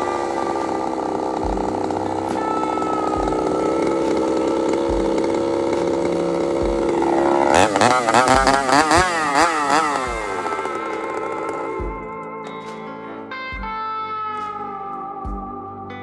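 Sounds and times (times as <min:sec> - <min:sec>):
chainsaw engine running: 0:00.0 - 0:12.4.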